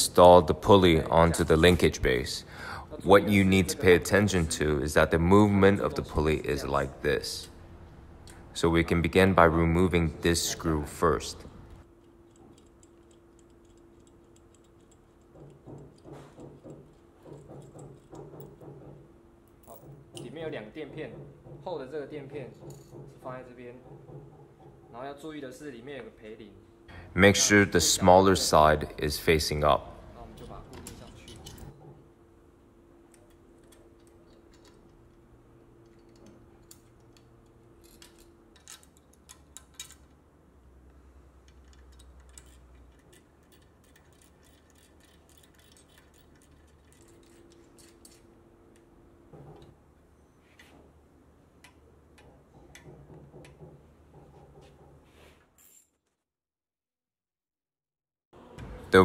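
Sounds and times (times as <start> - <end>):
faint steady hum: 0.0 - 55.1
small metal parts clinking: 11.9 - 16.1, 30.4 - 31.8, 35.8 - 40.2, 41.4 - 48.3.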